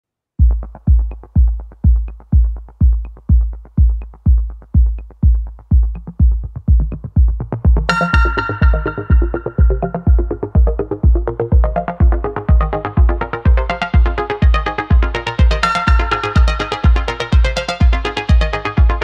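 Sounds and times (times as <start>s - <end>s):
heavy kick drum: 0.4s - 19.0s
bright synth melody: 7.9s - 19.0s.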